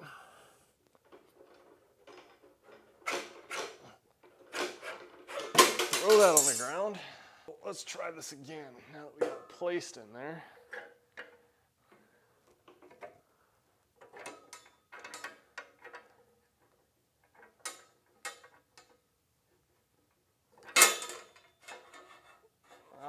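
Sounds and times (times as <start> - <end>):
metal clicks and scrapes: 1.0 - 6.8.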